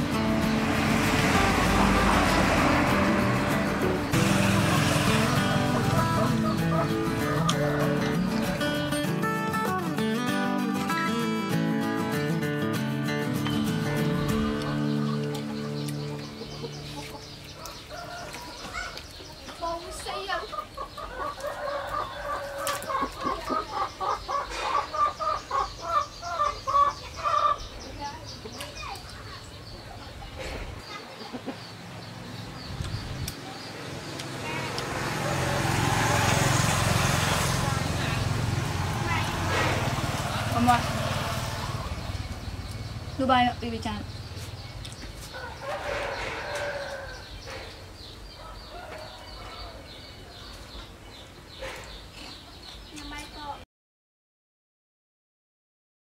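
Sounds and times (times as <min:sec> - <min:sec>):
chickens clucking: 0:00.7 - 0:08.7, 0:14.0 - 0:43.0.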